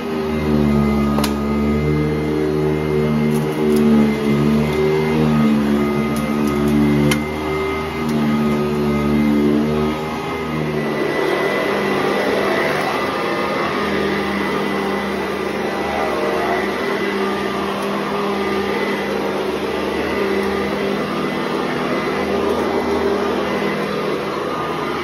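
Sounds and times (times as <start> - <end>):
vacuum cleaner running on carpet: 0.0 - 25.0.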